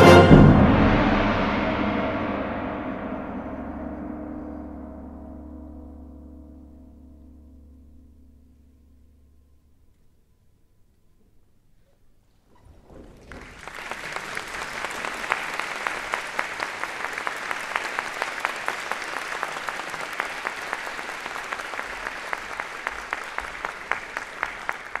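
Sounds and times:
audience applauding: 0:12.6 - 0:25.0.

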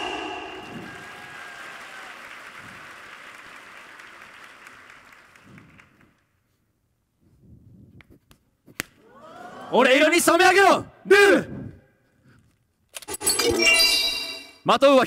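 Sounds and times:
audience applauding: 0:00.6 - 0:06.2
ringing tone: 0:13.2 - 0:14.6.

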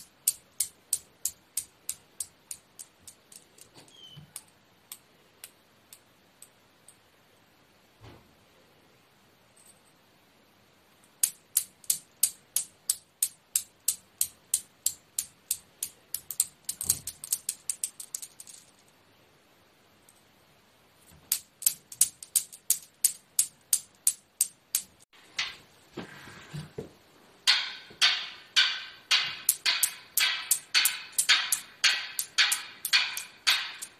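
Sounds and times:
steel balls clicking: 0:00.0 - 0:07.0, 0:11.1 - 0:18.9, 0:21.2 - 0:25.6, 0:27.4 - 0:33.9.

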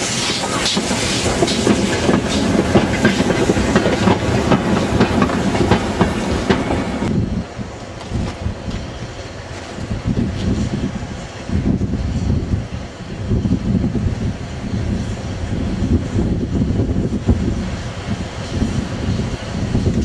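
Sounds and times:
train wheels clattering over rail joints: 0:00.0 - 0:07.1
distant locomotive rumble: 0:00.0 - 0:20.0.

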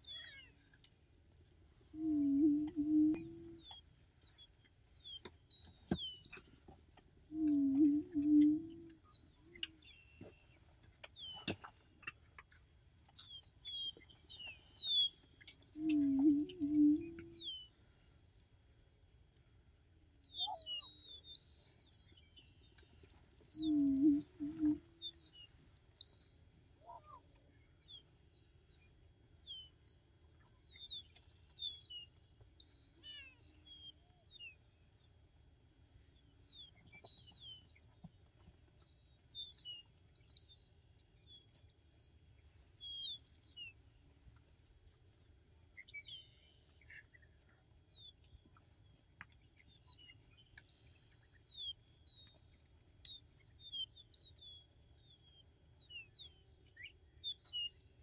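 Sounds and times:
songbirds singing and chirping: 0:00.0 - 0:18.6, 0:19.3 - 0:58.0
faint low bird hoot: 0:01.9 - 0:03.8, 0:07.3 - 0:09.8, 0:15.5 - 0:17.5, 0:20.4 - 0:21.0, 0:23.1 - 0:25.2.

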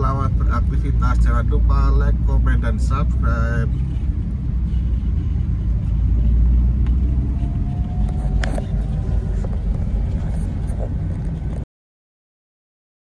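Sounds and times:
truck passing: 0:00.0 - 0:11.6
car road and engine rumble: 0:00.0 - 0:11.7.

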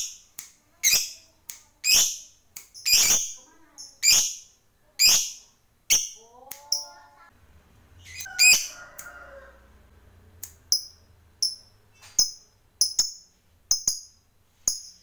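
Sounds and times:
lovebird shrill calls: 0:08.0 - 0:08.9.

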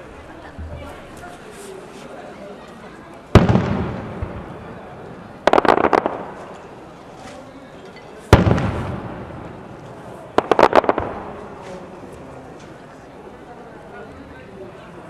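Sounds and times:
crackling firework pops: 0:03.3 - 0:04.7, 0:05.4 - 0:06.8, 0:08.3 - 0:12.8
firework shell bang rumbling: 0:03.4 - 0:04.7, 0:08.3 - 0:09.7.

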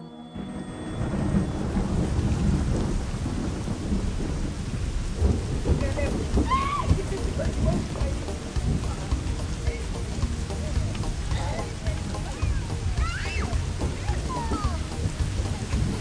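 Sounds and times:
high-pitched call: 0:00.0 - 0:02.0
steady rain: 0:00.2 - 0:16.0
low rumbling thunder: 0:00.4 - 0:13.0.

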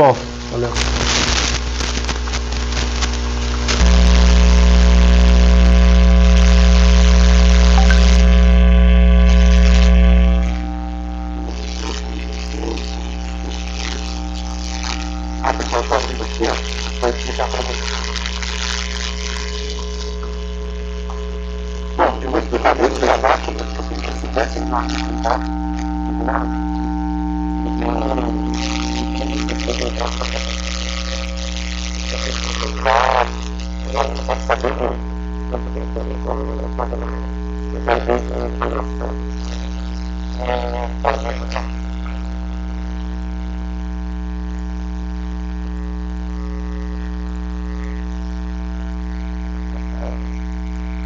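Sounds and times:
buzzing electrical hum: 0:00.0 - 0:51.0
faint voice-like sounds: 0:15.4 - 0:18.0, 0:22.0 - 0:25.6, 0:27.6 - 0:30.5, 0:32.2 - 0:39.8, 0:40.4 - 0:42.3.

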